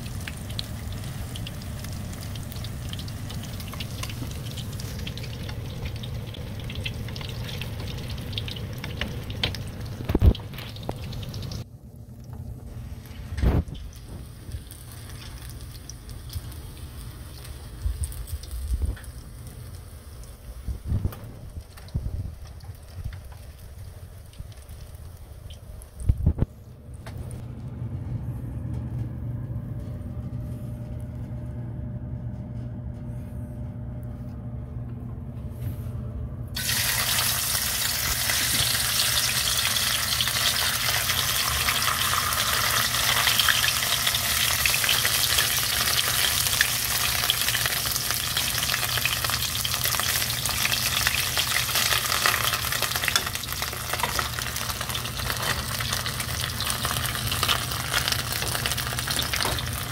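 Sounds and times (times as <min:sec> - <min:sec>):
oil sizzling in a pan: 0:00.0 - 0:11.6, 0:36.6 - 0:59.9
low steady hum: 0:00.0 - 0:59.9.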